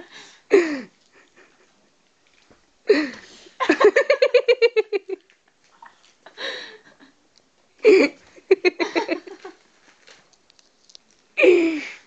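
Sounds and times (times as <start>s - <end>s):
woman giggling: 7.8s - 9.6s.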